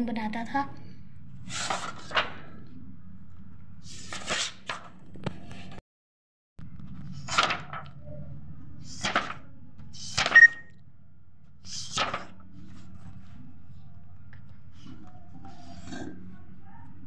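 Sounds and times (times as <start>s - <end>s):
paper rustling: 1.5s - 2.6s, 3.9s - 4.9s, 7.0s - 8.0s, 8.9s - 10.4s, 11.7s - 13.4s.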